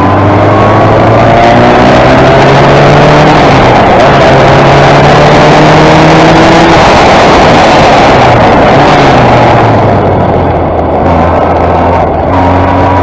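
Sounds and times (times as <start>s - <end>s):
race car engine at full throttle: 0.0s - 13.0s.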